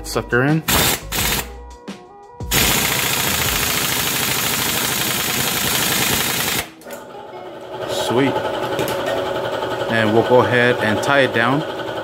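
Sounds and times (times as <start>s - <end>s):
impact wrench hammering: 0.7s - 1.5s, 2.5s - 6.8s, 8.7s - 9.3s.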